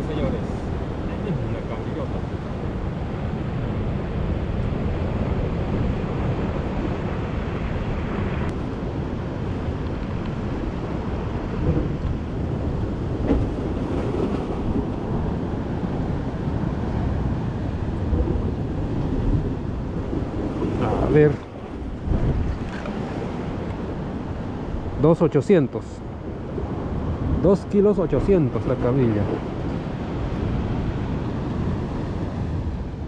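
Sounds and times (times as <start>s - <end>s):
wind buffeting microphone: 0.0s - 25.3s
surf washing on rocky shore: 0.0s - 33.0s.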